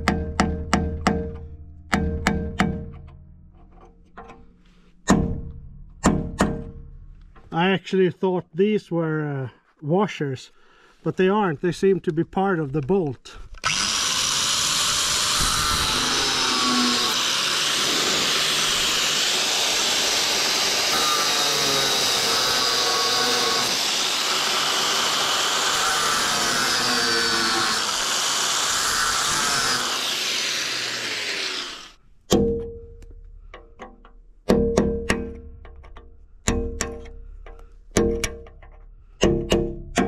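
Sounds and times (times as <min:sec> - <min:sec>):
angle grinder cutting steel: 0:13.6 - 0:32.0.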